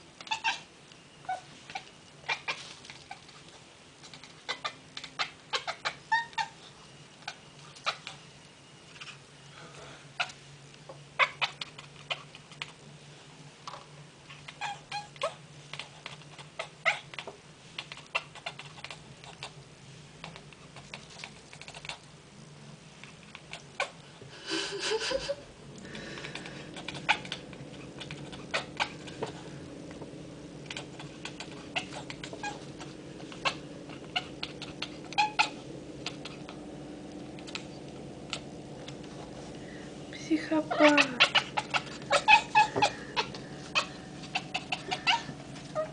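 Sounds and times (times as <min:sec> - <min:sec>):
cat chattering: 0:00.2 - 0:08.2, 0:10.1 - 0:10.4, 0:11.2 - 0:12.8, 0:14.3 - 0:19.6, 0:20.2 - 0:22.1, 0:23.1 - 0:24.0, 0:26.1 - 0:29.4, 0:30.6 - 0:39.0, 0:40.4 - 0:45.9.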